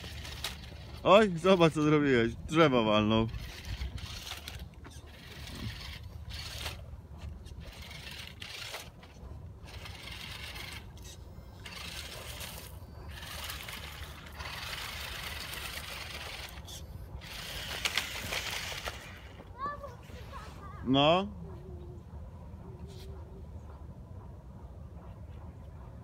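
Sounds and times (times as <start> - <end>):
toy car crunching through dry leaves: 0.0 - 1.8, 3.1 - 6.8, 7.5 - 19.4.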